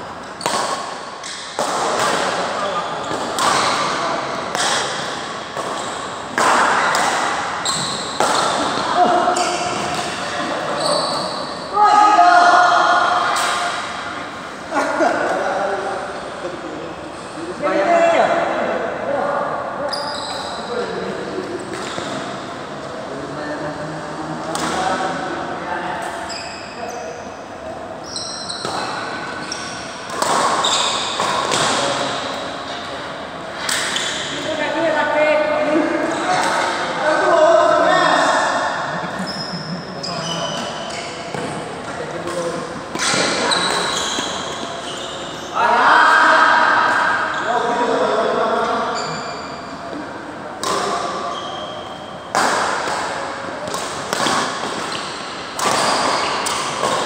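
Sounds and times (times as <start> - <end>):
rackets hitting shuttlecock: 0.3 - 10.3, 28.6 - 32.4, 40.6 - 44.7, 50.6 - 51.2, 52.3 - 57.0
shoe squeaks on court floor: 7.6 - 8.2, 9.3 - 11.6, 19.9 - 20.7, 26.2 - 27.2, 28.0 - 31.3, 39.2 - 41.6, 43.0 - 45.6, 48.9 - 49.9, 51.2 - 52.3
racket striking shuttlecock: 52.3 - 57.0.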